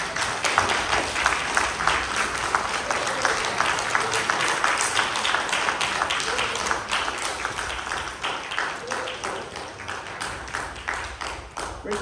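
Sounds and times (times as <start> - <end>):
congregation applauding: 0.0 - 12.0.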